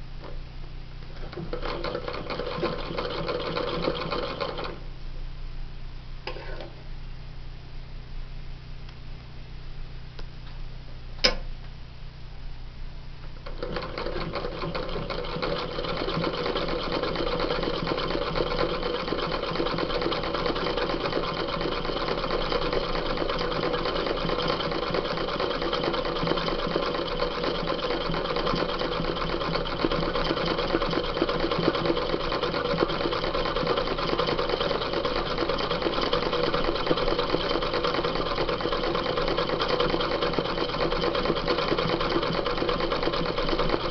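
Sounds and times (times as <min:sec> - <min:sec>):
sewing machine stitching: 0:01.2 - 0:04.8, 0:13.4 - 0:43.9
sharp click: 0:11.2 - 0:11.8.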